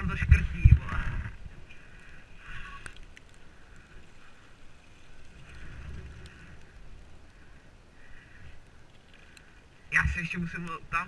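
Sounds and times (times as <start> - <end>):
wind on microphone: 0.0 - 1.8
bicycle tyres rumbling on asphalt: 0.0 - 10.6
faint ticks: 1.6 - 10.1.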